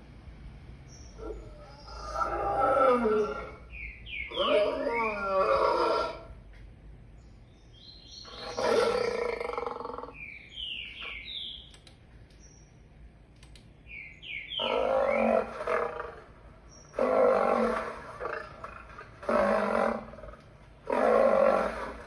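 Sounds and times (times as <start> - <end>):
lion roaring: 1.2 - 3.7, 4.3 - 6.3, 8.3 - 10.2, 14.6 - 22.0.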